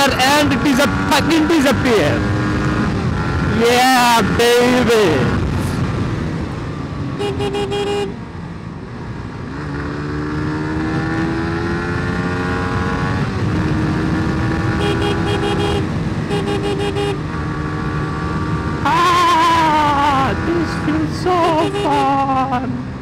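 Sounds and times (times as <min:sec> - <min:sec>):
motorcycle engine accelerating: 0:00.0 - 0:23.0
road and wind noise: 0:00.0 - 0:23.0
vehicle horn beeps: 0:07.2 - 0:08.1, 0:14.7 - 0:17.2.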